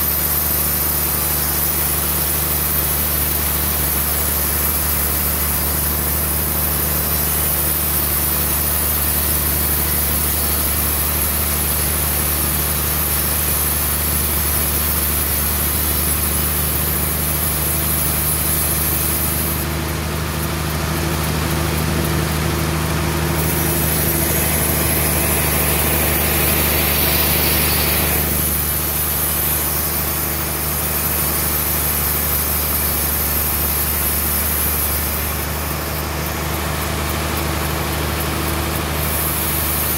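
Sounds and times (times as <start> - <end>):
band sawmill cutting a log: 0.0 - 39.9
hiss: 38.9 - 39.9.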